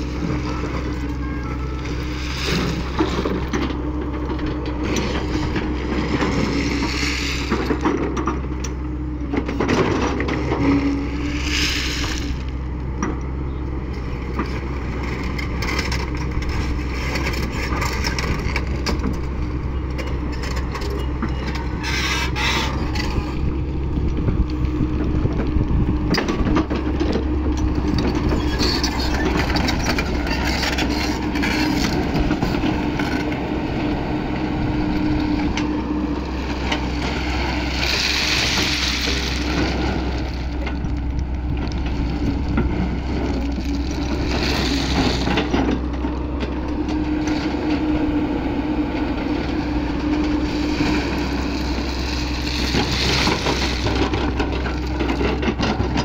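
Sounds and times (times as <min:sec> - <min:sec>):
excavator diesel engine humming: 0:00.0 - 0:56.0
bucket scraping crushed stone: 0:11.0 - 0:12.5, 0:50.2 - 0:55.2.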